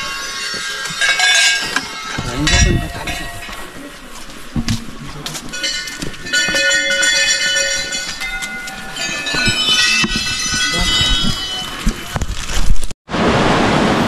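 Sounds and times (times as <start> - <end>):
small brass bells ringing: 0.0 - 4.3, 5.4 - 12.1.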